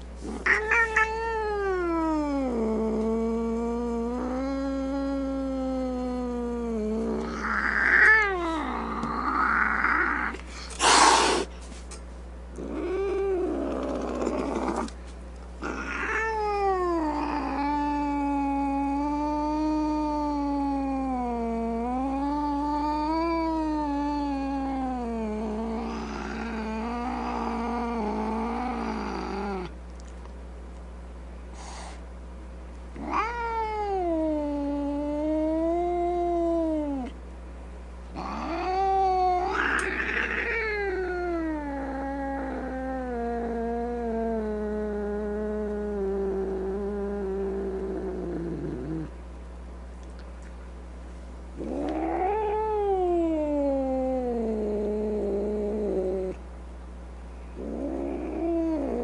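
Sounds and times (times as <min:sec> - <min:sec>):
cat yowling: 0:00.4 - 0:02.6, 0:15.6 - 0:29.7, 0:33.0 - 0:37.1, 0:38.2 - 0:44.0, 0:51.6 - 0:54.4.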